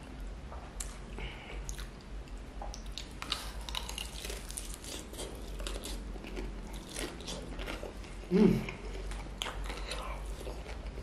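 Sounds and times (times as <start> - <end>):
steady low hum: 0.0 - 11.0
fried chicken crunching: 2.8 - 11.0.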